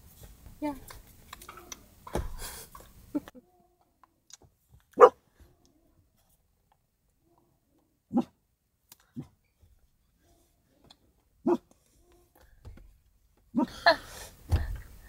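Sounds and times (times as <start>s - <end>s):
thump: 2.1s - 2.5s
dog barking: 5.0s - 5.2s, 8.1s - 8.4s, 11.4s - 11.7s, 13.6s - 13.8s.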